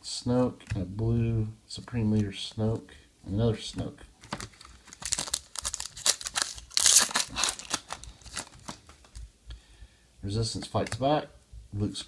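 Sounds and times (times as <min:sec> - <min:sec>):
wrapper crinkling: 0:04.2 - 0:09.2
wrapper tearing rip: 0:04.4 - 0:09.2.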